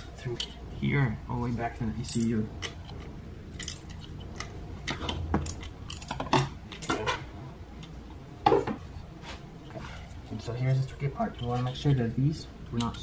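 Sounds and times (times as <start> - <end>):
connectors clicking and clattering: 1.9 - 8.0, 11.1 - 13.0.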